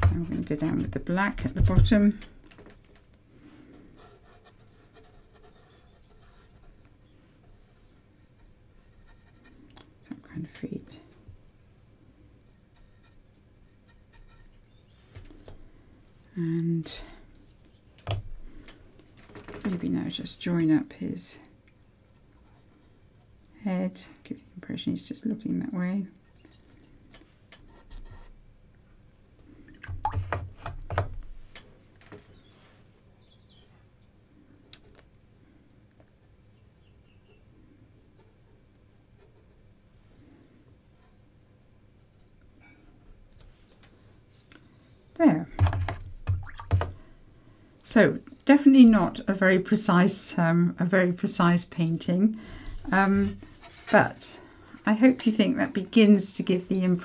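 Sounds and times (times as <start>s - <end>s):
paintbrush scratching on board: 4.0s - 9.7s.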